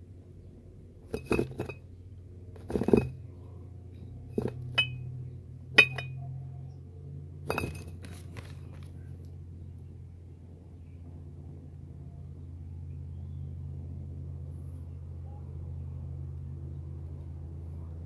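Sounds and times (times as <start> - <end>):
low hum: 0.0 - 8.1
glass bottles clinking: 4.4 - 5.0, 5.8 - 6.2, 7.5 - 7.9.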